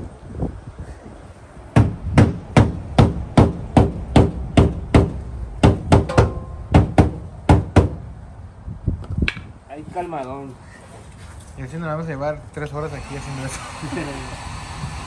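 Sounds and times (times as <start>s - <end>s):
hammer striking metal: 5.9s - 7.2s.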